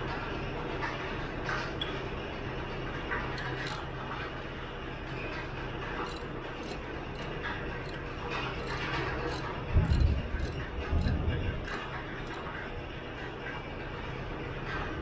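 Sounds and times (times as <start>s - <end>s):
wrench clinking on bolts: 3.4s - 3.9s, 6.0s - 12.5s.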